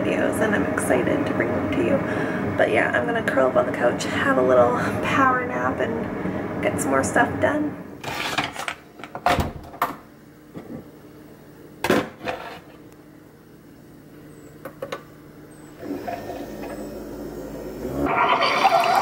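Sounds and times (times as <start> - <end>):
coffee maker brewing: 15.7 - 19.0.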